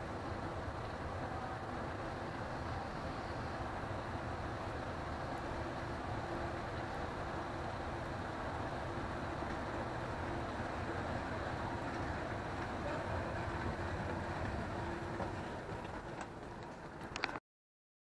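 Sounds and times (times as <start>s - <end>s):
escalator mechanical rumble: 0.0s - 17.4s
faint steady hum: 0.0s - 17.4s.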